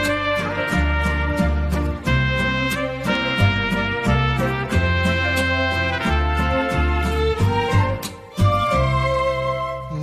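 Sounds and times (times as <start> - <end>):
percussive strikes: 0.0 - 9.1
bowed strings: 0.0 - 10.0
sustained bass: 0.0 - 10.0.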